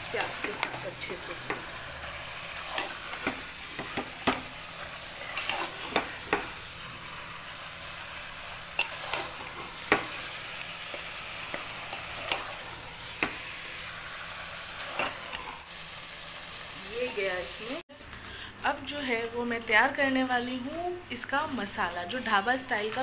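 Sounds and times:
meat sizzling in hot oil: 0.0s - 17.9s.

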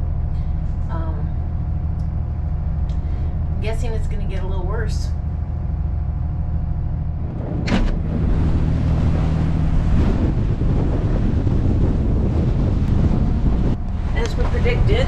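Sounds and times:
diesel engine running: 0.0s - 15.0s
wind on microphone: 5.6s - 15.0s.

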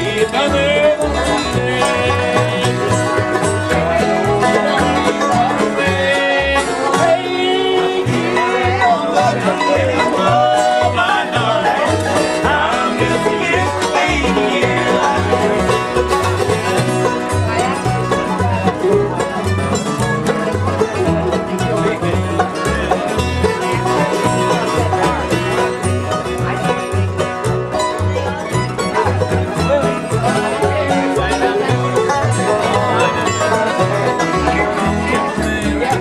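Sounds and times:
person singing: 0.0s - 15.7s
bluegrass band playing: 0.0s - 36.0s.

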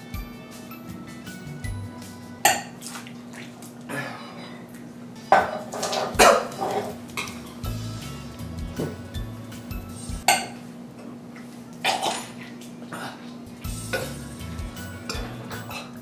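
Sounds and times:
background music: 0.0s - 2.8s, 5.1s - 10.2s, 13.5s - 16.0s.

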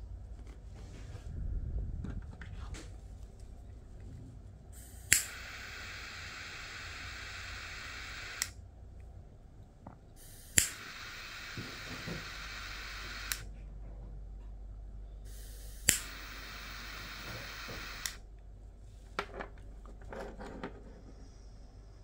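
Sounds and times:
jet flame hissing: 4.8s - 8.5s, 10.2s - 13.5s, 15.3s - 18.2s
lighter igniter click: 4.8s - 8.6s, 10.2s - 13.5s, 15.3s - 18.2s.

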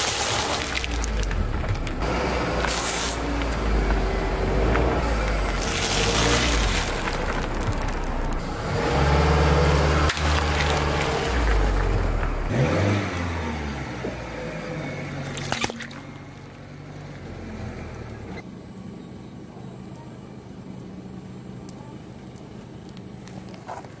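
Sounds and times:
car engine running: 0.0s - 18.4s
quiet steady background hum: 18.4s - 24.0s.

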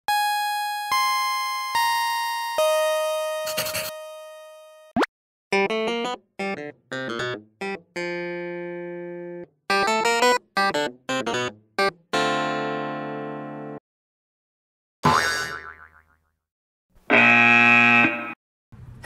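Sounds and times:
electronic keyboard tune: 0.1s - 13.8s
long held keyboard notes: 5.5s - 13.8s.

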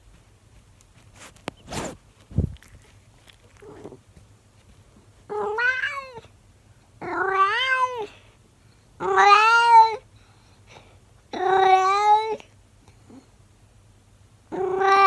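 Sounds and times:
cat meowing: 5.3s - 6.2s, 7.0s - 8.1s, 9.0s - 10.0s, 14.5s - 15.0s.

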